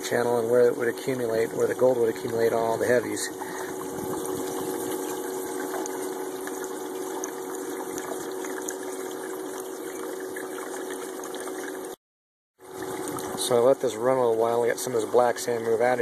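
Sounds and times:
steady low hum: 0.0 - 12.0
water running over rocks: 0.5 - 11.9.

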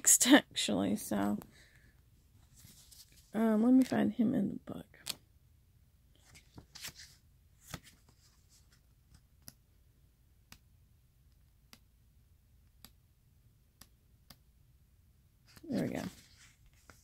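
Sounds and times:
book pages rustling: 2.3 - 3.9, 6.1 - 9.6, 15.4 - 17.0.

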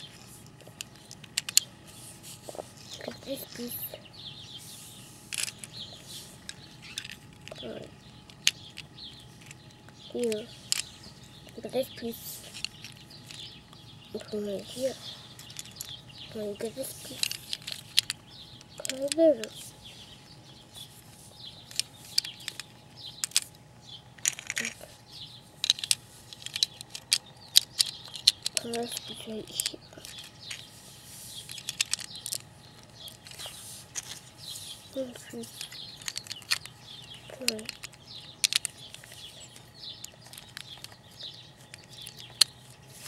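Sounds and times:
plastic bricks clicking: 0.0 - 1.7, 5.3 - 13.8, 15.4 - 16.0, 16.6 - 19.7, 21.6 - 23.6, 24.2 - 30.7, 31.3 - 43.0
small birds chirping: 0.0 - 43.0.

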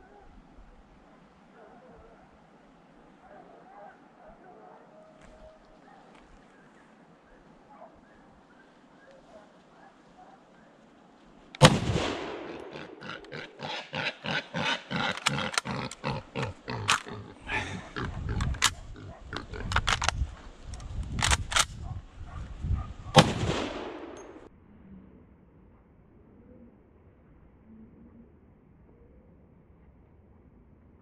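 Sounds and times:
sharp cracks: 11.5 - 21.8, 23.2 - 24.5
gunshots with rolling echo: 11.6 - 13.7, 23.2 - 24.5.

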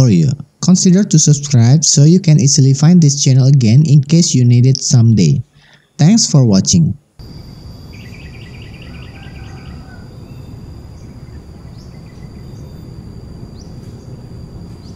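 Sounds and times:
low background rumble: 7.0 - 14.9
bird chirps: 7.2 - 14.9
high insect tone: 7.2 - 14.9
pulsing insect trill: 7.2 - 14.9.

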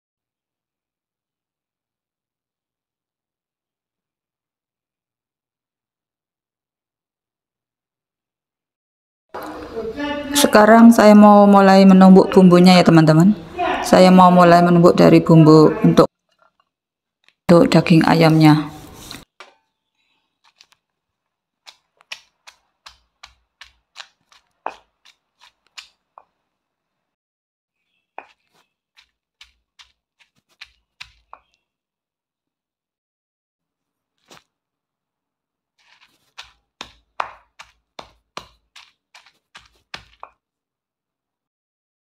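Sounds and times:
pestle scraping: 18.3 - 26.6, 27.8 - 31.6, 35.8 - 40.4
stone pestle pounding in mortar: 21.7 - 25.9, 36.3 - 40.4.

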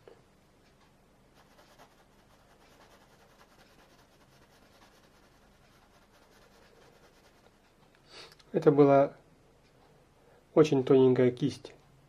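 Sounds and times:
paintbrush scratching on wood: 1.4 - 7.6.

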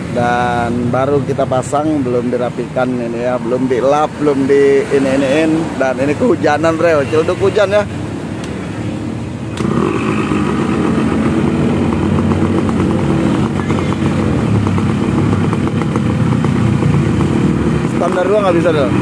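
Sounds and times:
motorcycle kick-start: 9.5 - 10.5
two-stroke engine idling: 9.5 - 18.7.

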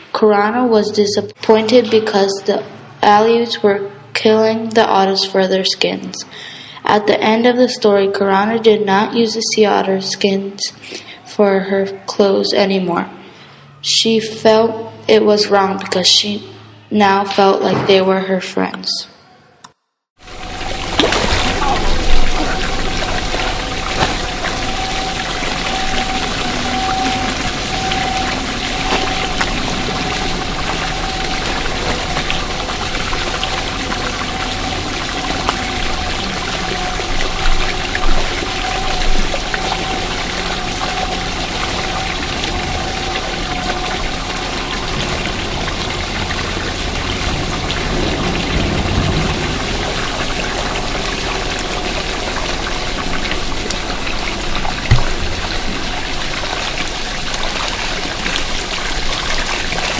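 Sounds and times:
steady hum: 20.2 - 59.9
water pouring into pool: 20.2 - 59.9.

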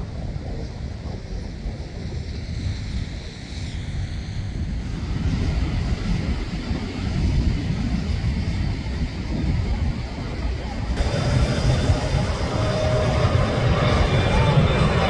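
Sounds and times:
steady low rumble: 0.0 - 15.0
wind rumbling on microphone: 0.0 - 15.0
jet airliner hiss: 10.9 - 15.0.

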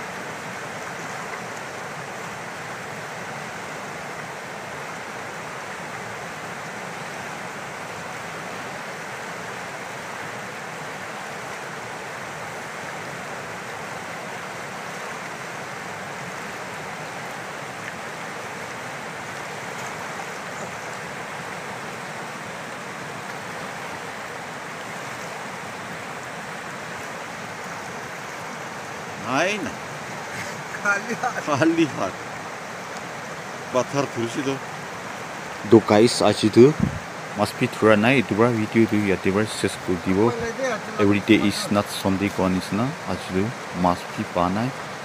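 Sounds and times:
river rushing over rapids: 0.0 - 45.0.

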